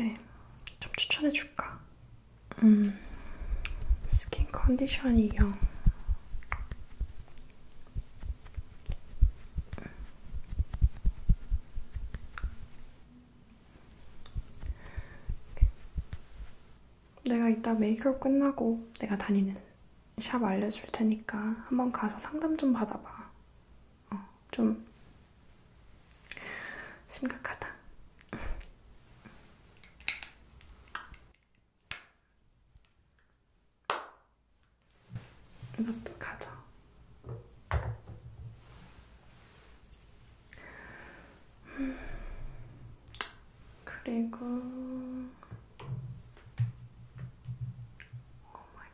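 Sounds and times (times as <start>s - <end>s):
brush tapping on microphone: 3.6s - 13.0s, 14.2s - 16.7s.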